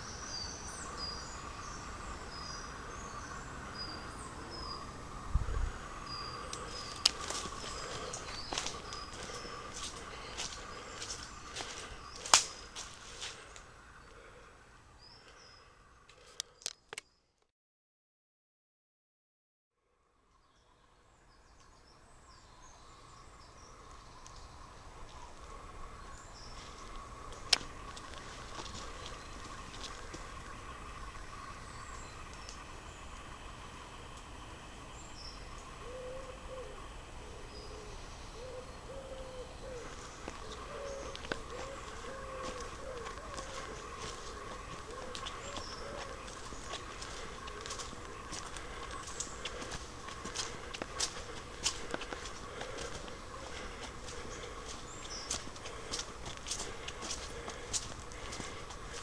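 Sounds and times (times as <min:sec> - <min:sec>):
bird chirp: 0:00.0 - 0:17.4, 0:34.8 - 0:59.0
footsteps on leafy path: 0:06.1 - 0:14.3, 0:24.3 - 0:31.5, 0:39.7 - 0:59.0
faint high songbird chirps: 0:20.2 - 0:33.5
low hooting bird coos: 0:24.8 - 0:34.0, 0:35.1 - 0:59.0.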